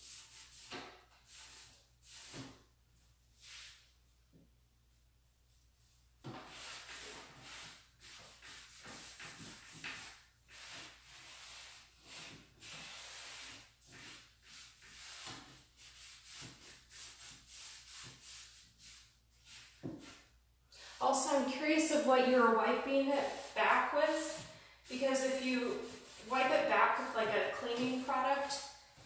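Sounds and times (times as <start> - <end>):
cloth rag rubbing on wood: 5.8 - 20.3, 21.0 - 29.0.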